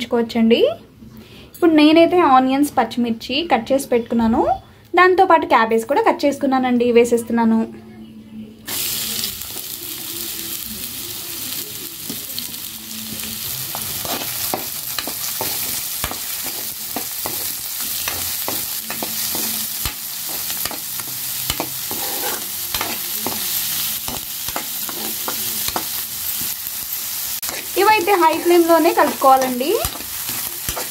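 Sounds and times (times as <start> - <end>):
vegetables sizzling in oil: 8.7 - 30.9
spatula scraping pan: 13.8 - 26.5.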